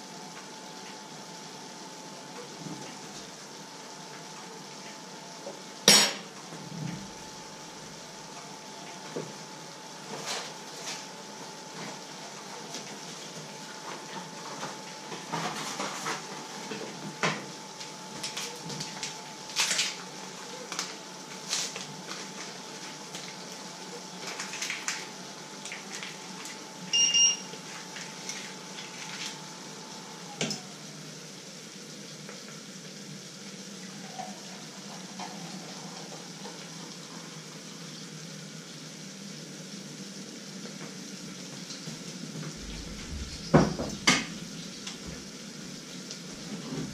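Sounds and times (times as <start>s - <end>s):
short electronic beep: 26.9s - 27.5s.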